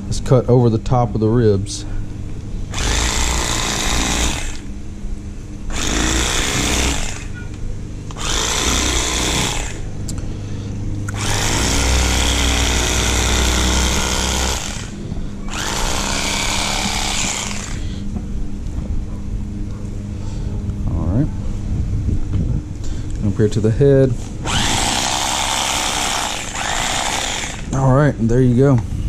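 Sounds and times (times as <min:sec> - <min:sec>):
electric fillet knife running: 0:02.7 - 0:04.7, 0:05.7 - 0:07.4, 0:08.1 - 0:10.0, 0:11.1 - 0:18.0, 0:24.4 - 0:27.8.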